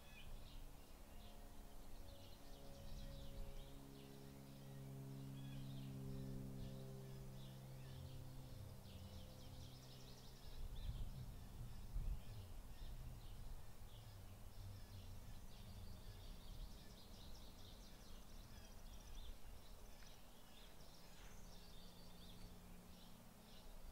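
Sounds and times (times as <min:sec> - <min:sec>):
faint low hum: 0:00.0 - 0:23.9
small birds chirping: 0:02.0 - 0:23.9.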